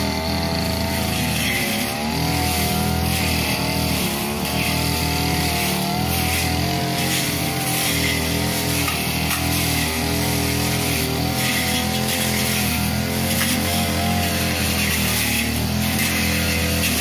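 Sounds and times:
blade cutting grass: 0.0s - 17.0s
brush cutter engine running: 0.0s - 17.0s.

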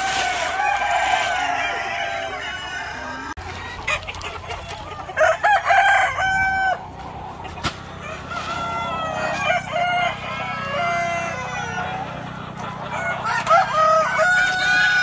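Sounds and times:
rooster crowing: 0.0s - 3.4s, 5.0s - 6.9s, 8.0s - 12.2s, 12.9s - 15.0s
chickens clucking: 0.0s - 15.0s.

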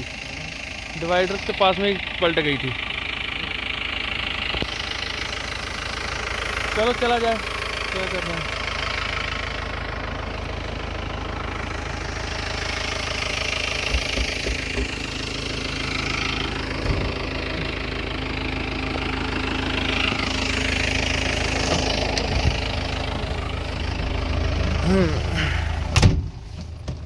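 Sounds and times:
vehicle engine idling: 0.0s - 27.0s
low knocks: 13.9s - 15.0s.

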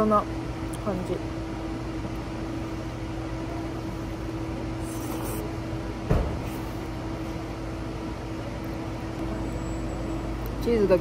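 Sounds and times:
low mechanical hum: 0.0s - 11.0s
soft thump: 6.1s - 6.6s.

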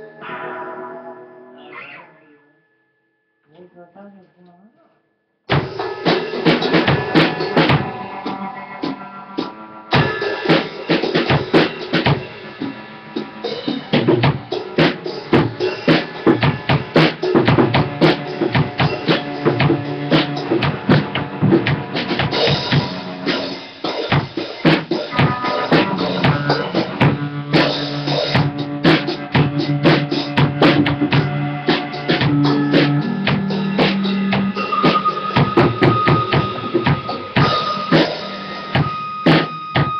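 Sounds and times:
low held notes: 0.0s - 2.8s, 25.1s - 39.2s
drum kit playing: 5.5s - 39.9s.

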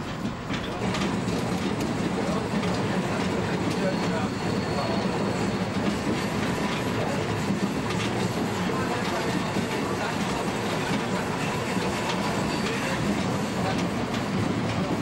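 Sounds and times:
wheels clicking over rail joints: 0.0s - 4.2s
railbus interior running noise: 0.0s - 15.0s.

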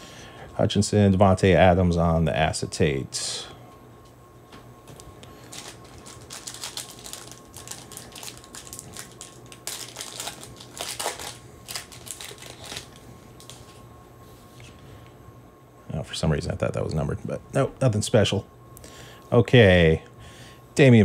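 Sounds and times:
foil wrapper crinkling and tearing: 5.4s - 13.8s.

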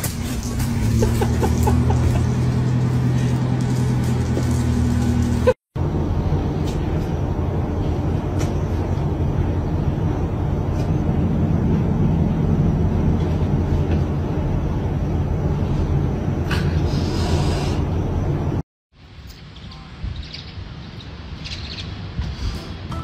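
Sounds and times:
steady low rumble: 0.0s - 22.9s.

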